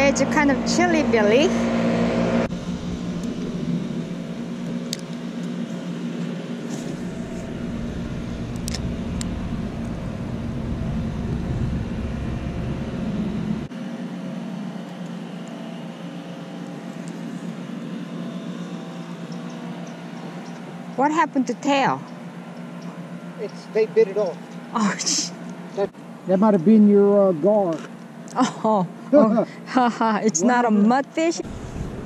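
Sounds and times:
small engine humming: 0.0s - 32.0s.

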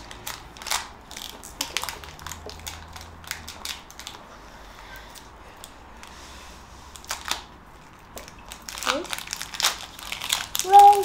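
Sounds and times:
foil pack crinkling: 0.0s - 4.2s, 7.0s - 11.0s.

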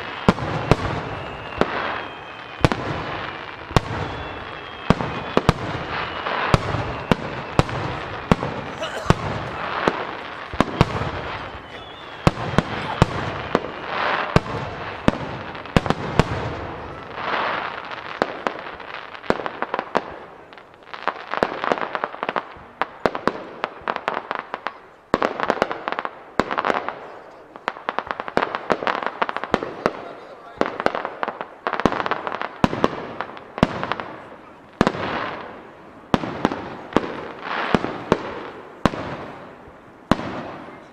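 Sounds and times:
fireworks bangs: 0.0s - 40.9s
fireworks crackling hiss: 0.0s - 40.9s.

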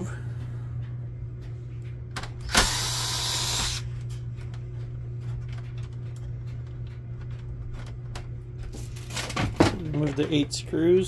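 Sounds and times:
steady low hum: 0.0s - 11.0s
cordless drill spinning: 2.5s - 3.8s.

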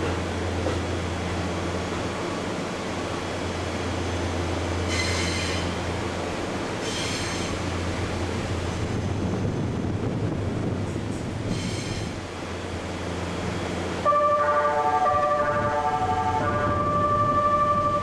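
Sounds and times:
low steady train hum: 0.0s - 18.0s
train wheels squealing: 4.8s - 5.8s, 6.8s - 7.6s, 11.5s - 12.2s.

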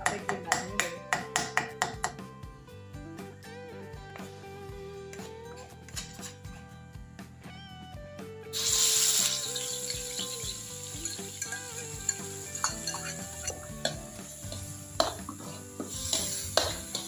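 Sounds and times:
food sizzling in hot oil: 8.5s - 17.0s
metal ladle scraping a wok: 8.6s - 17.0s.

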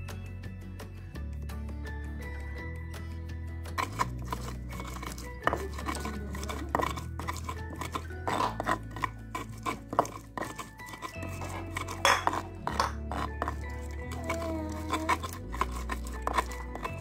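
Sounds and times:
pestle grinding in stone mortar: 3.8s - 17.0s.

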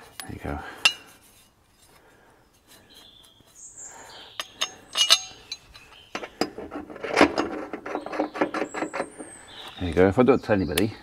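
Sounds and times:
metal clinks and knocks: 0.8s - 1.9s, 4.3s - 9.3s
metal rubbing squeaks: 0.8s - 9.7s.

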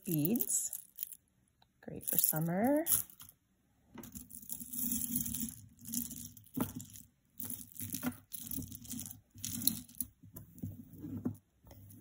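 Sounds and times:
necklaces rustling and crinkling: 0.0s - 1.2s, 1.9s - 3.4s, 4.0s - 12.0s
beads clicking: 0.0s - 1.3s, 2.0s - 3.4s, 4.0s - 10.2s.

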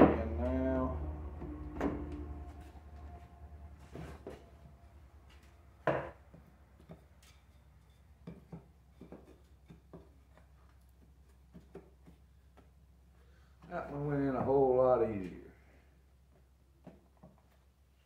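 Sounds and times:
faint low hum: 0.0s - 6.2s.

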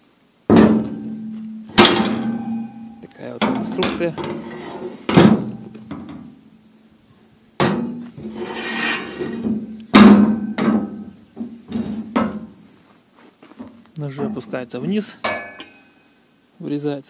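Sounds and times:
digging fork clanking on steel: 0.5s - 6.4s, 7.6s - 12.6s, 13.6s - 15.9s
scraping rattle: 0.6s - 6.3s, 7.6s - 12.6s.

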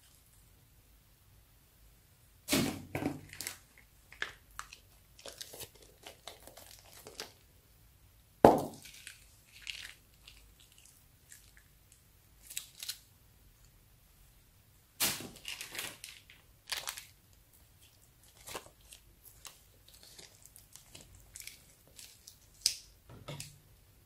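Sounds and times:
plastic bags crinkling: 2.9s - 7.4s, 8.7s - 10.9s, 15.0s - 17.2s, 17.8s - 23.5s.

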